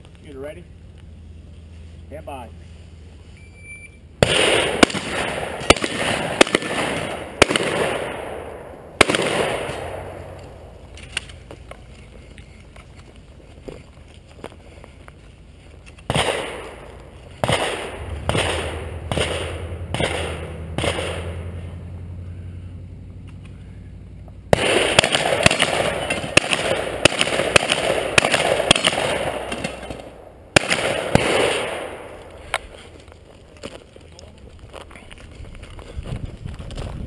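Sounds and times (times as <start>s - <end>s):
shotgun shots echoing: 4.2s - 10.9s, 16.1s - 21.9s, 24.5s - 32.5s.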